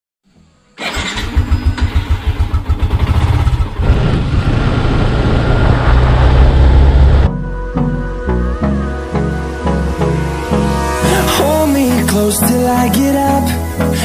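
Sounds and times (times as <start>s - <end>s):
motorcycle engine: 0.8s - 7.3s.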